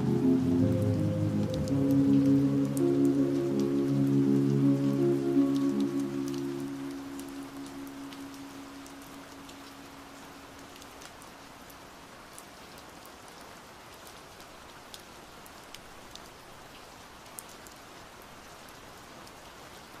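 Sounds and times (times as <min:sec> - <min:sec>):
held low music note: 0:00.0 - 0:09.6
raindrop ticks: 0:00.0 - 0:11.4
steady rain hiss: 0:00.0 - 0:20.0.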